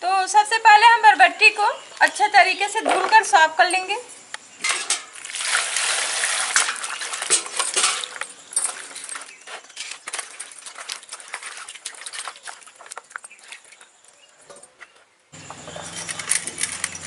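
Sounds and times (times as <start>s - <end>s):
water splashing and sloshing: 4.6s - 14.8s.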